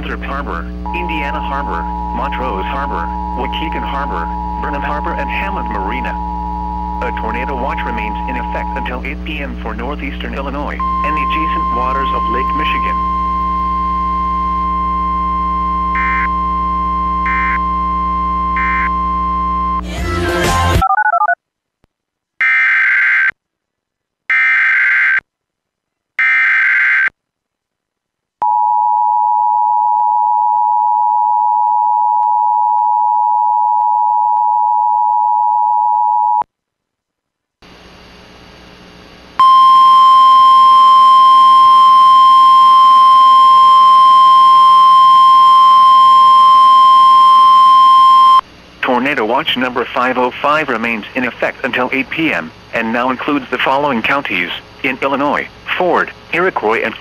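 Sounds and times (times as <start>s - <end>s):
two-tone attention signal: 0.9s - 9.0s, 10.8s - 19.8s
electronic tone pattern: 0.9s - 9.2s, 10.8s - 14.0s
steady alert tone: 0.9s - 9.4s, 10.8s - 13.2s
digital data bursts: 0.9s - 9.5s, 10.1s - 13.0s.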